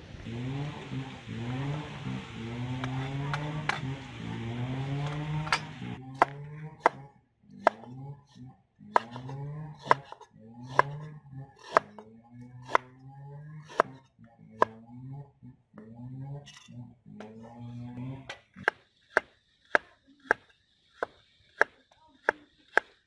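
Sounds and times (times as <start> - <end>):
cleaver chopping on wooden board: 2.6 - 4.0, 4.8 - 8.0, 8.9 - 13.0, 13.6 - 14.0, 14.6 - 14.8, 18.3 - 23.0.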